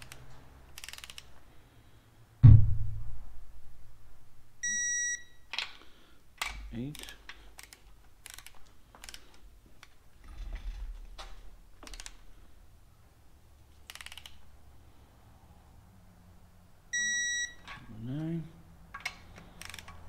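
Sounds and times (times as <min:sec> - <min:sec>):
torque wrench ratchet clicking: 0:00.8 - 0:01.3
low hum: 0:02.4 - 0:04.6.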